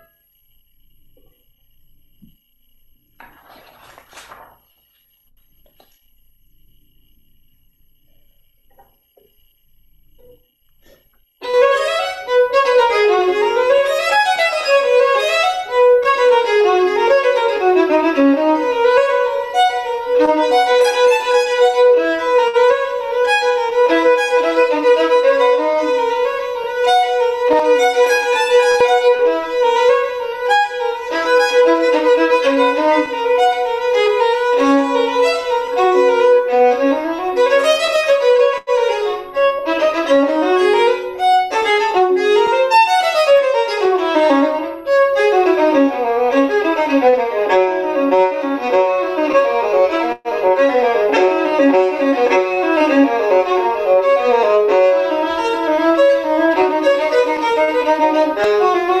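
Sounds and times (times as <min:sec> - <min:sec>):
solo bowed violin: 0:11.4 - 0:59.0.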